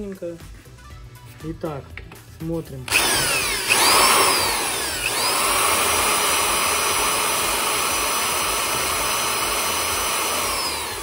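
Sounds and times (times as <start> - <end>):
hammer drill motor whine: 2.9 - 11.0.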